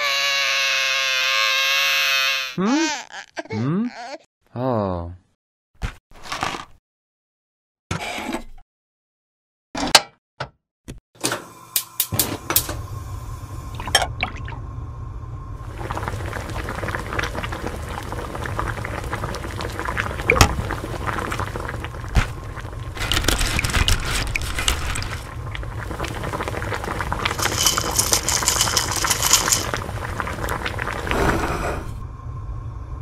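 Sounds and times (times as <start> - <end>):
liquid pouring and splashing: 15.6 - 31.3
liquid bubbling at a boil: 15.6 - 31.9.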